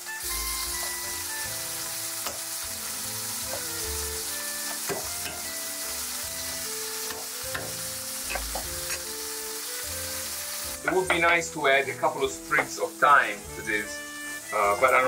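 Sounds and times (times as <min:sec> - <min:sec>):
meat sizzling in a pan: 0:00.0 - 0:15.0
knife tapping on cutting board: 0:07.1 - 0:09.0.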